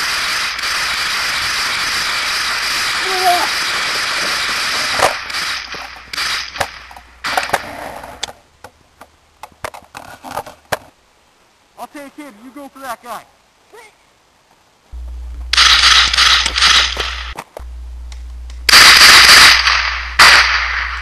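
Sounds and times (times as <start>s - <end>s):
loud steady hiss: 0.0s - 9.7s, 10.6s - 21.0s
sharp cracks: 0.0s - 10.9s, 15.4s - 21.0s.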